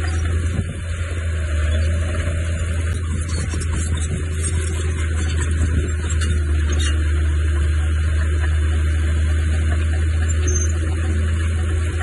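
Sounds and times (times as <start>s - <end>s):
diesel engine droning: 0.0s - 12.0s.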